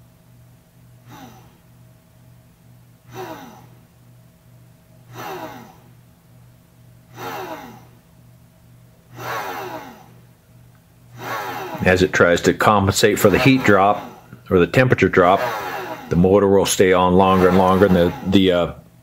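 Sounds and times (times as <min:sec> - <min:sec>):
low steady hum: 0:00.0 - 0:19.0
heat gun blowing bursts: 0:09.1 - 0:09.8, 0:11.2 - 0:11.9, 0:15.2 - 0:16.2, 0:17.2 - 0:18.4.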